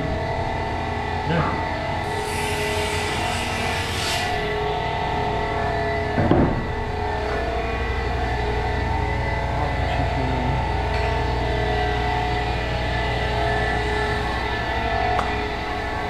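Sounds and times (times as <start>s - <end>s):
workshop machinery drone: 0.0s - 16.0s
knock: 6.2s - 6.6s.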